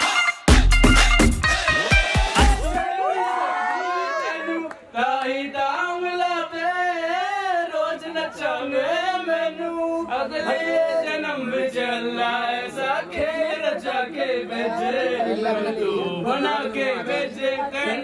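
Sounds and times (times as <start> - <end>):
men singing together: 4.8 - 18.0.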